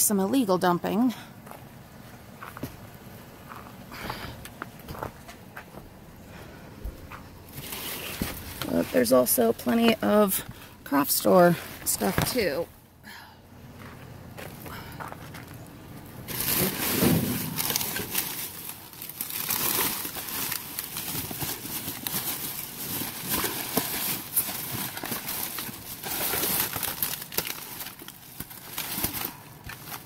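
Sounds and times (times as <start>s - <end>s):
plastic bags rustling and crinkling: 7.5s - 12.6s, 15.3s - 30.0s.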